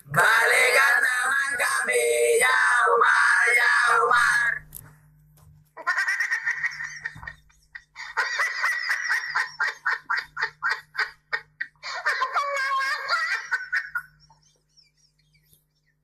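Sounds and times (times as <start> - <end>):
high-pitched laughter: 5.8 - 15.6.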